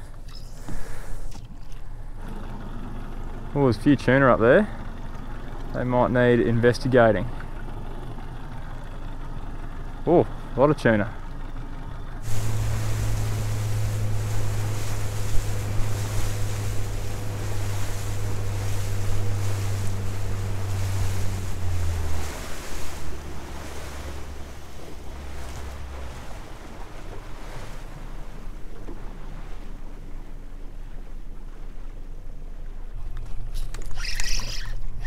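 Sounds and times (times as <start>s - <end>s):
outboard engine running: 0.0s - 35.0s
water rushing past hull: 0.0s - 35.0s
wind on microphone: 12.2s - 26.4s.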